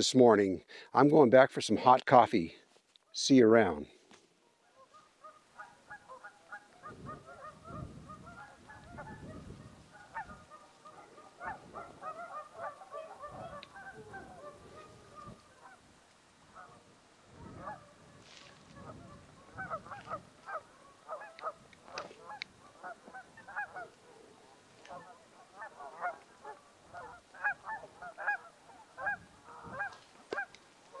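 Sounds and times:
geese honking: 4.5s - 15.9s, 16.5s - 31.0s
wind rumble on microphone: 6.8s - 10.5s, 11.4s - 12.3s, 13.1s - 15.6s, 16.5s - 20.6s, 29.0s - 30.0s.

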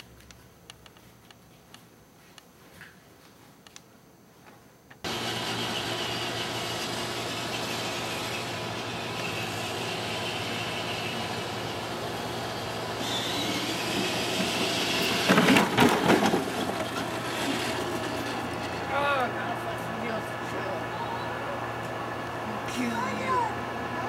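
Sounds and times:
toy car electric motor whining: 5.1s - 19.3s.

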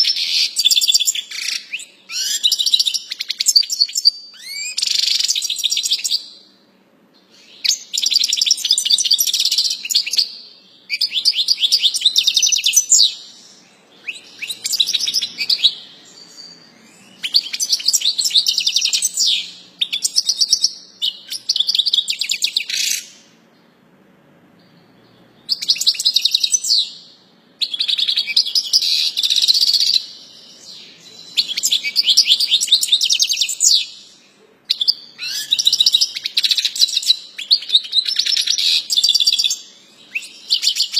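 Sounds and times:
goldfinch singing: 7.3s - 23.2s.

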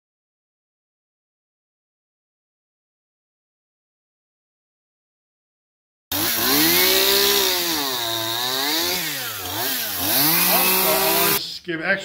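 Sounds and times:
chainsaw cutting through log: 6.1s - 11.4s.

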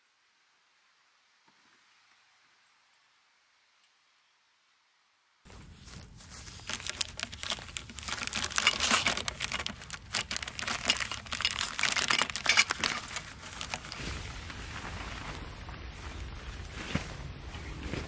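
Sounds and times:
plastic packaging crinkling: 5.5s - 14.6s.

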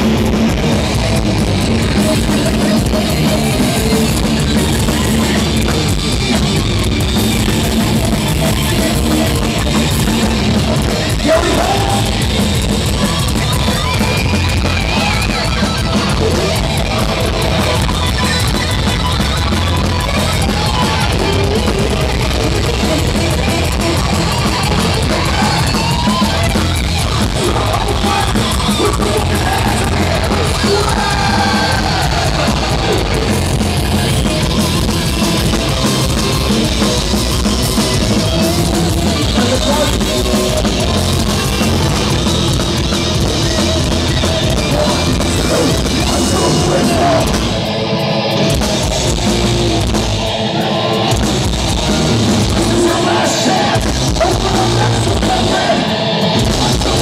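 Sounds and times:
distorted electric guitars: 0.0s - 57.0s
pounding drums: 0.0s - 57.0s
shouted vocals: 8.5s - 12.4s, 19.8s - 47.7s, 50.1s - 57.0s.

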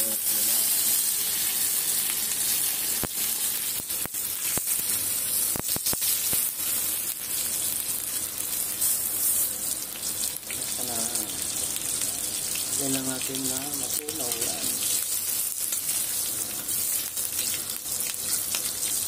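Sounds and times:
butter sizzling: 0.0s - 19.0s
sharp spatter pops: 3.0s - 6.6s.

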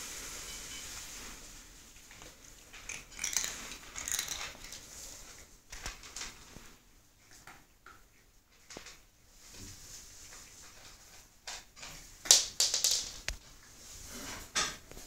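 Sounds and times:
cat crunching a dry treat: 2.2s - 5.0s.

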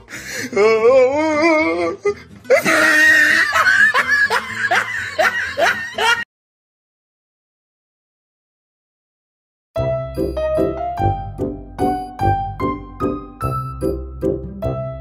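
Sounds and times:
music: 0.0s - 6.2s, 9.8s - 15.0s
person laughing hard: 2.1s - 6.3s.

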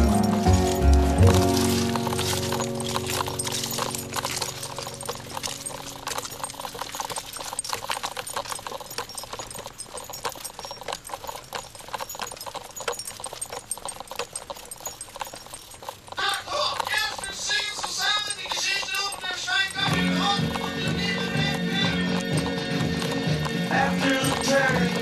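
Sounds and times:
background music: 0.0s - 6.6s, 19.8s - 25.0s
dog footsteps on concrete: 0.0s - 25.0s
dog wheelchair cart rattling: 0.0s - 25.0s.

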